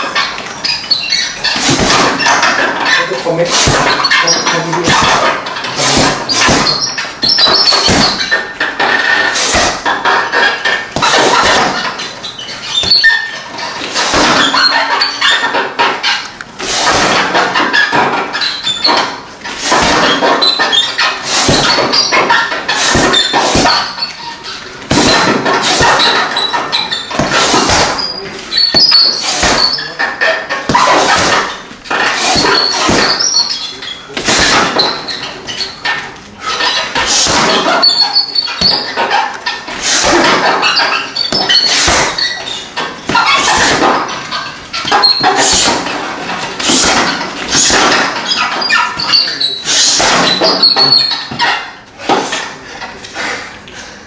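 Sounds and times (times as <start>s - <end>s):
punches and kicks on heavy bag: 1.4s - 2.8s, 3.5s - 10.4s, 11.0s - 12.0s, 13.9s - 14.7s, 16.6s - 18.3s, 18.9s - 24.1s, 24.9s - 29.8s, 30.7s - 33.4s, 34.2s - 35.1s, 37.0s - 38.0s, 39.8s - 42.2s, 43.0s - 44.2s, 44.8s - 48.4s, 49.8s - 50.9s.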